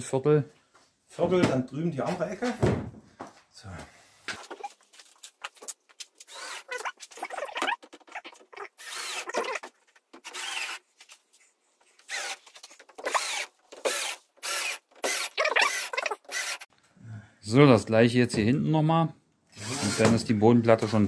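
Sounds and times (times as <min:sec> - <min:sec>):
drill driving screws into wood: 0:06.2 - 0:10.8, 0:12.0 - 0:16.7, 0:19.5 - 0:20.2.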